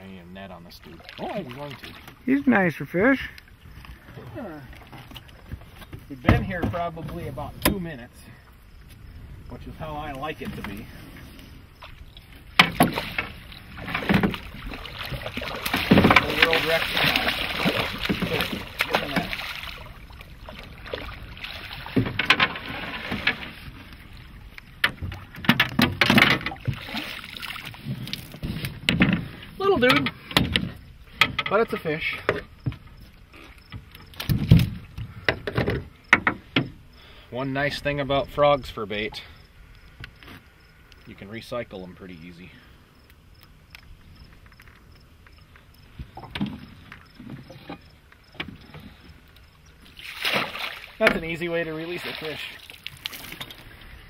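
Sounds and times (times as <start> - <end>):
crickets chirping: 0.0 - 54.0
knocks and thumps in metal boat: 4.9 - 7.9, 12.6 - 19.8, 21.6 - 23.6, 24.8 - 27.2, 27.8 - 32.9, 33.7 - 36.8, 50.3 - 51.4.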